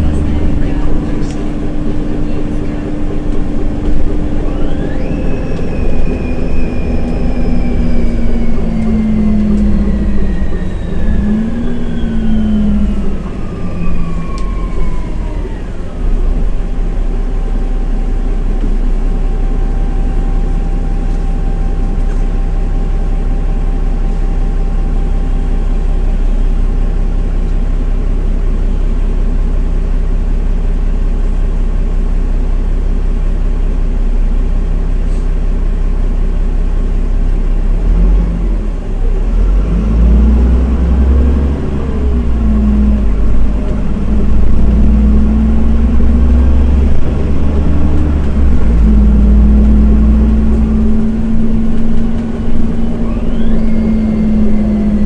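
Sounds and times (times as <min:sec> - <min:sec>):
bus drivetrain whine: 0:00.0 - 0:55.0
bus engine idling: 0:00.0 - 0:55.0.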